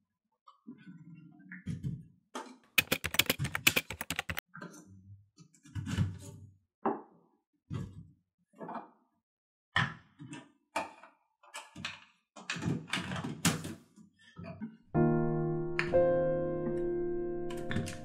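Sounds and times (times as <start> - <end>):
piano music: 15.0 - 18.0.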